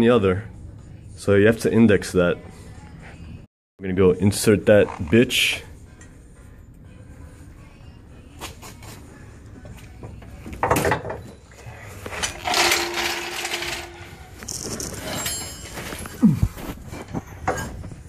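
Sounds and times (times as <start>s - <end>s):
metal spring clanking and scraping: 11.9s - 18.0s.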